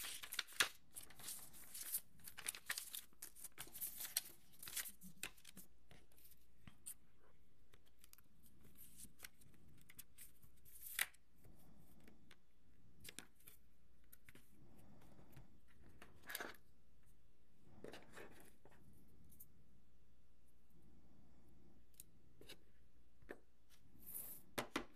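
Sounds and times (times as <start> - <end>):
cardboard packaging rustling: 0.0 - 5.6.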